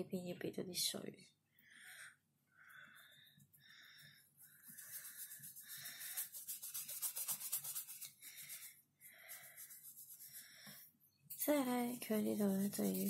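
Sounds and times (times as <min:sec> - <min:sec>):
brush scrubbing on paper: 0:04.4 - 0:10.7, 0:11.4 - 0:13.0.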